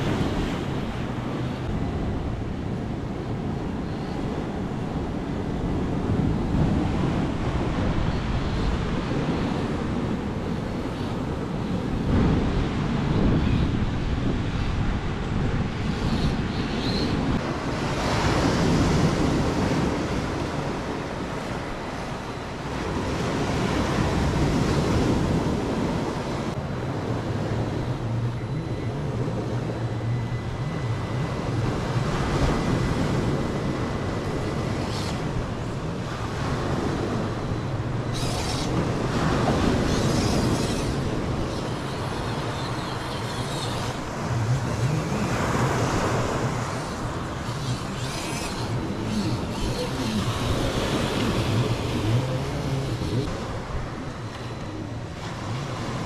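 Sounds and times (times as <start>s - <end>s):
wind buffeting microphone: 0.0s - 56.0s
waves washing against rocks: 32.1s - 56.0s.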